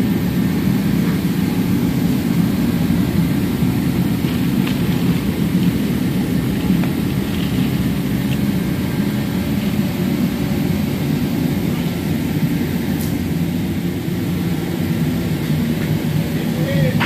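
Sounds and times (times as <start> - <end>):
low roar of machinery: 0.0 - 17.0.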